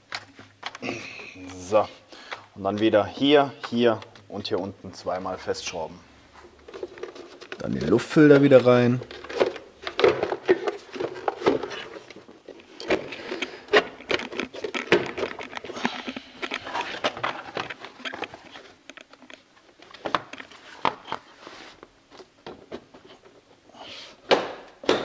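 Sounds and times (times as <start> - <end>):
plastic parts clicking and knocking: 0.0 - 1.0, 6.5 - 21.3, 24.2 - 25.0
plastic scraping: 5.3 - 21.8.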